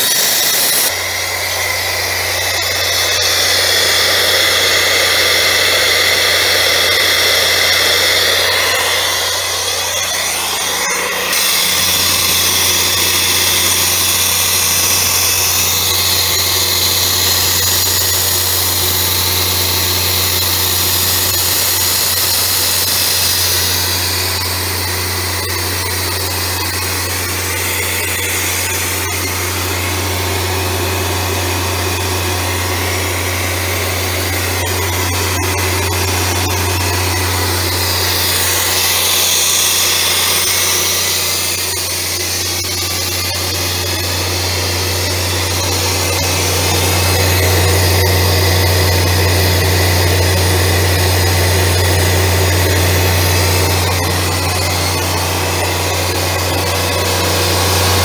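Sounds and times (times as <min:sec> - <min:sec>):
high hiss: 0:00.0 - 0:30.0
air compressor engine hum: 0:00.0 - 0:58.0.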